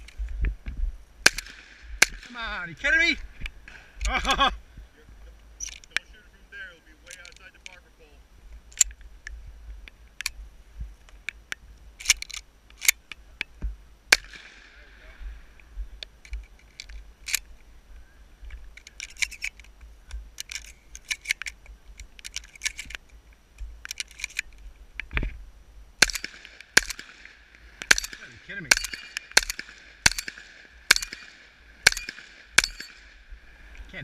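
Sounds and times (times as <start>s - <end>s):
shotgun shots: 1.2s - 2.6s, 14.1s - 15.0s, 26.0s - 33.3s
shotgun handling clicks: 11.1s - 13.5s, 16.2s - 17.5s, 18.5s - 25.2s, 26.0s - 33.1s.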